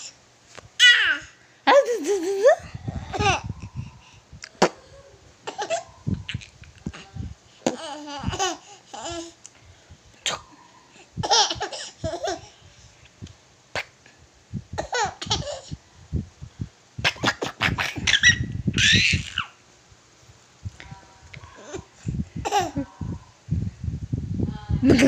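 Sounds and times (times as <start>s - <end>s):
baby giggling: 0.8s - 3.5s, 4.6s - 6.5s, 7.7s - 9.3s, 11.2s - 12.5s, 14.8s - 15.8s, 17.1s - 19.5s, 21.6s - 23.1s.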